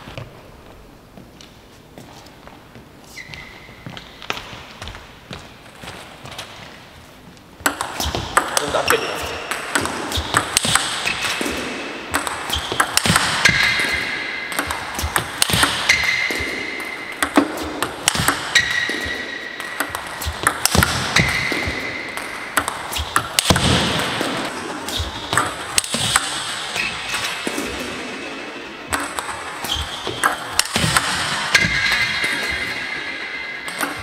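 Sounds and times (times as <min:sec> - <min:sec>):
short high squeaks: 0:03.1 - 0:03.8
table tennis balls clicking off paddles: 0:07.4 - 0:28.0, 0:28.9 - 0:34.0
balls bouncing on table: 0:07.6 - 0:28.0, 0:28.9 - 0:34.0.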